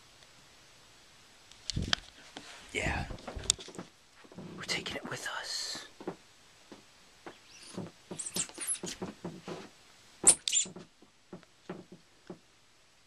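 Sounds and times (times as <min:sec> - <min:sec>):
rustles and taps of clutter: 0:01.5 - 0:12.5
high squeaks: 0:07.3 - 0:09.2, 0:10.2 - 0:10.8.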